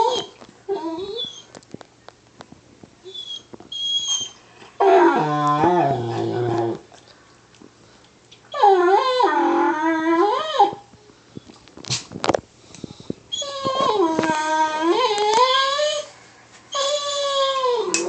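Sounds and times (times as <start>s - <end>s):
dog whining: 0.0s - 1.5s, 3.0s - 6.9s, 8.5s - 10.9s, 13.3s - 18.0s
dog howling: 3.8s - 6.8s, 13.4s - 16.1s, 16.7s - 18.0s.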